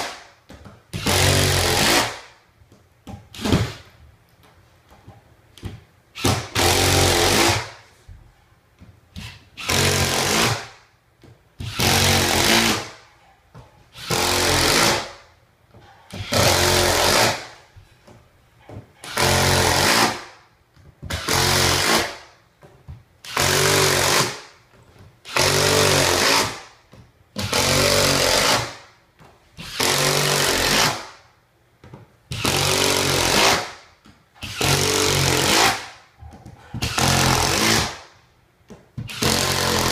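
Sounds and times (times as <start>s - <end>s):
impact driver driving screws: 39.0s - 39.9s.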